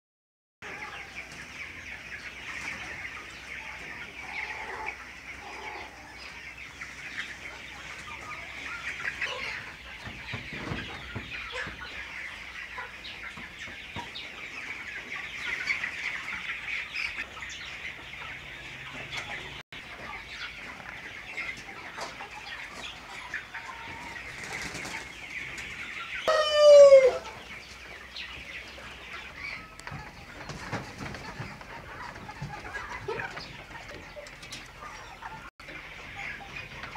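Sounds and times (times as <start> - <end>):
flock of chickens calling: 0.6 - 36.9
loud drawn-out chicken call: 26.2 - 27.4.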